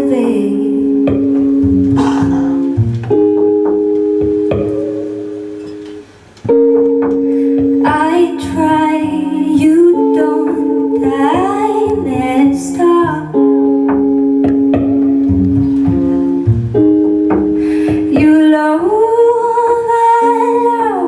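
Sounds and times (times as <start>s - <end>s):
woman singing: 0.0s - 1.3s, 7.7s - 13.9s, 17.9s - 21.0s
electric guitar chords: 0.0s - 21.0s
double bass: 1.0s - 5.7s, 12.0s - 18.4s.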